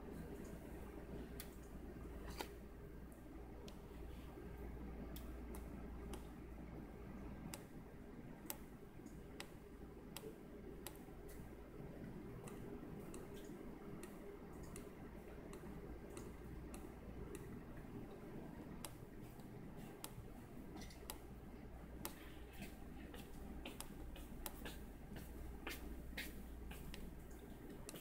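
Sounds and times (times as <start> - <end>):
low steady hum: 0.0 - 28.0
small clicks and ticks: 12.4 - 14.9.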